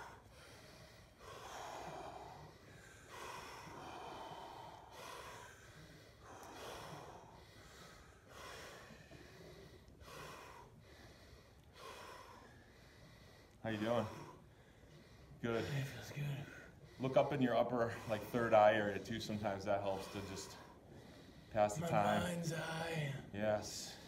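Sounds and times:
man breathing deeply: 0.0s - 23.1s.

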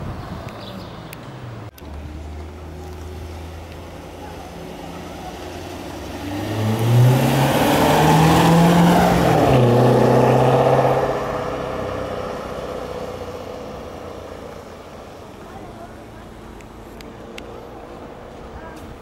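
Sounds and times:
car engine accelerating past: 1.4s - 14.8s.

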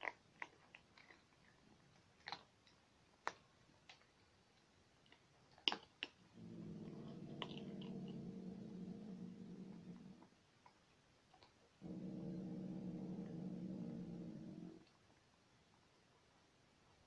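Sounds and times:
cats chewing food: 0.0s - 15.3s
cat purring rumble: 6.2s - 10.4s, 11.8s - 15.0s.

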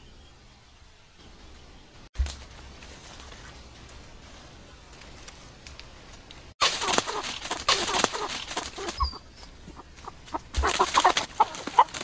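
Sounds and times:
dry leaves crackling: 2.2s - 12.0s.

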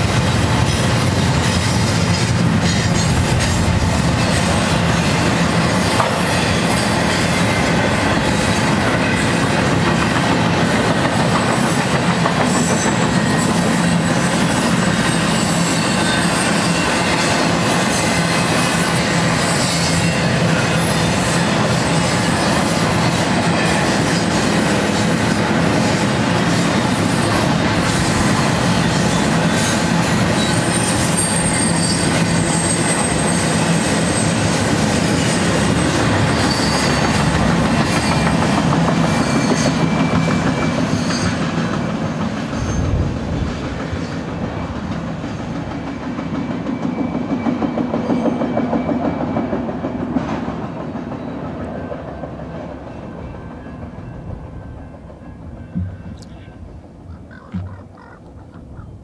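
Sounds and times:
train wheels rumbling on rail: 0.0s - 59.0s
high wheel squeal: 12.2s - 25.2s, 26.5s - 41.6s, 42.5s - 43.1s.

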